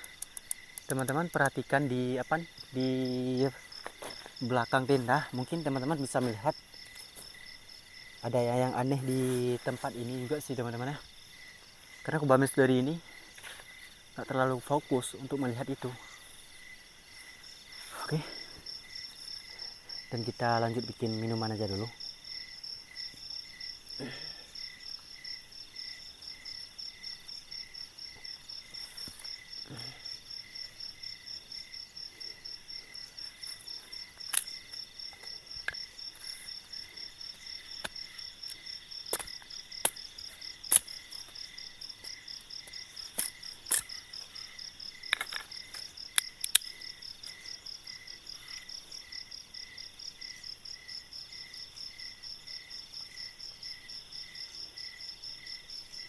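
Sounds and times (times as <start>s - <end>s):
night insects chirping: 0.0s - 56.0s
bamboo sticks cracking being chopped: 37.8s - 41.4s, 42.0s - 44.0s, 45.0s - 46.7s.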